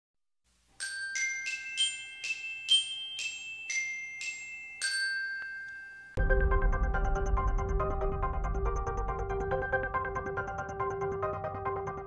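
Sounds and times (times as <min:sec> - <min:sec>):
glockenspiel jingle: 0:00.8 - 0:06.2.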